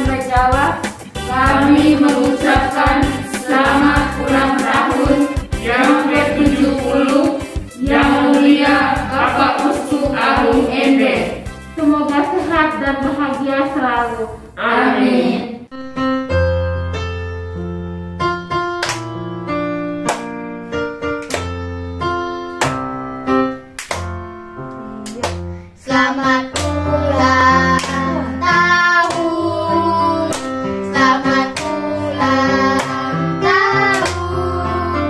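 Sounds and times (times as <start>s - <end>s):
electronic keyboard music: 0.0s - 13.9s, 15.7s - 25.5s
children singing: 1.3s - 11.4s, 25.9s - 35.0s.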